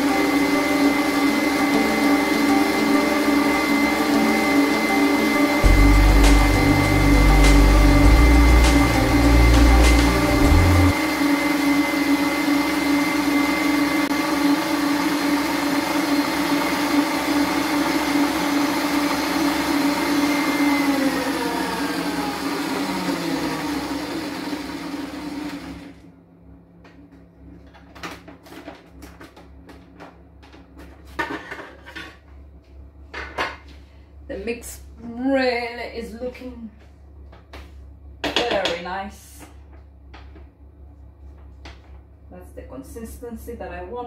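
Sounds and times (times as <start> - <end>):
stand mixer running: 0.0 - 26.0.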